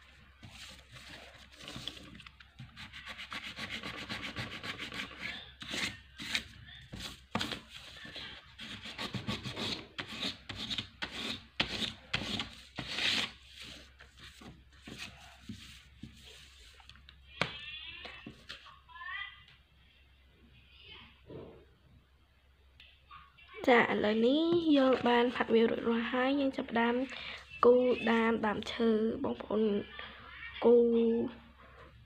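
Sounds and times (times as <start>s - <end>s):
fingers rubbing pastel on paper: 2.7s - 16.7s.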